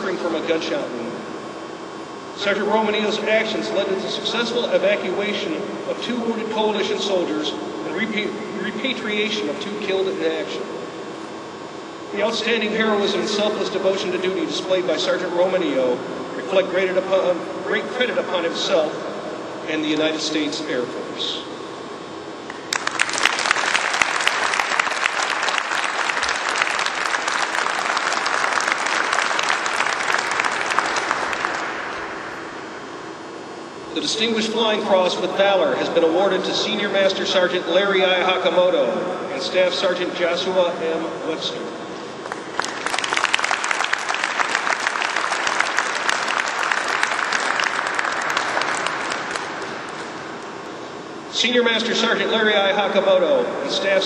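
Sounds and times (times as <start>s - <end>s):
audience applauding: 22.5s - 32.0s, 42.3s - 50.1s.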